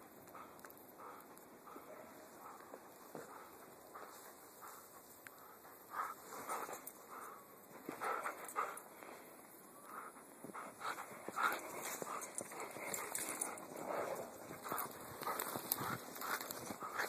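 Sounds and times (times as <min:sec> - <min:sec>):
crunches in snow: 0:10.0 - 0:17.0.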